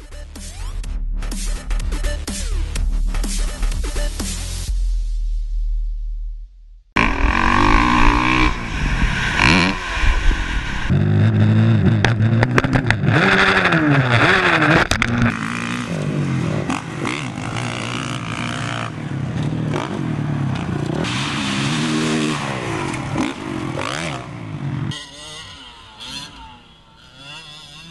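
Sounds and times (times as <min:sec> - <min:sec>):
dirt bike engines revving: 0:07.0 - 0:27.9.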